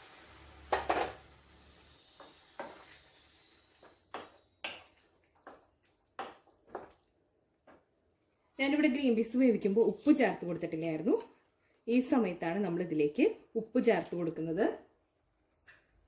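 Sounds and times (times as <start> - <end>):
wooden spatula scraping a pan: 0.1 - 7.0
spatula knocking on pan: 4.1 - 5.6, 6.2 - 6.9.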